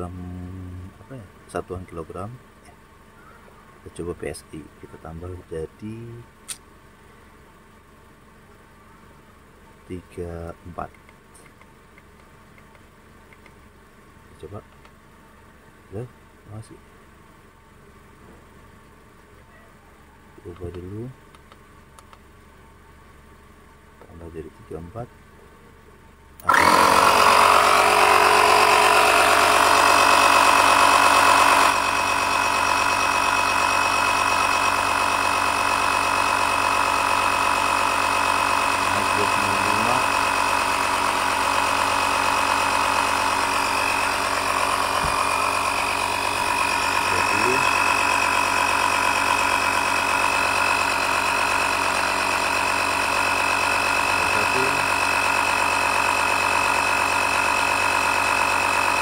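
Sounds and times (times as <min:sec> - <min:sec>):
tyre inflator compressor whining: 0:26.4 - 0:59.0.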